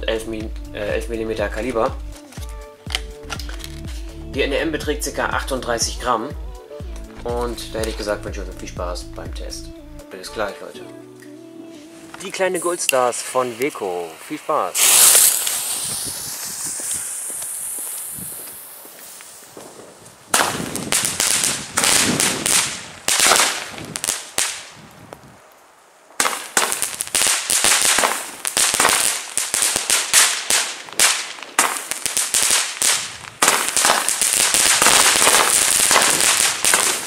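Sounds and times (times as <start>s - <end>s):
firework hiss: 11.9s - 24.9s, 26.2s - 37.0s
firework launch pops: 12.9s - 25.3s, 26.2s - 37.0s.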